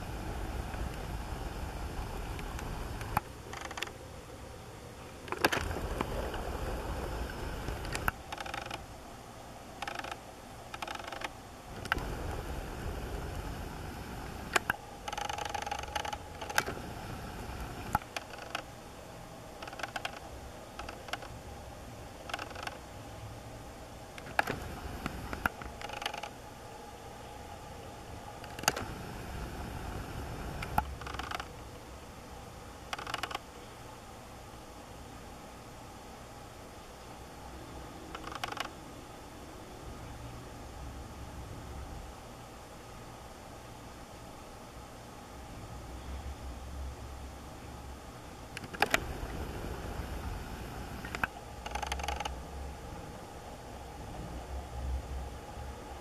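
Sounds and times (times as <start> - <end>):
camera zoom whirring: 0.0 - 4.0, 5.2 - 8.8, 9.8 - 18.7, 19.6 - 21.4, 22.2 - 22.8, 24.2 - 26.4, 28.4 - 31.6, 32.9 - 33.5, 38.1 - 38.8, 48.5 - 52.4.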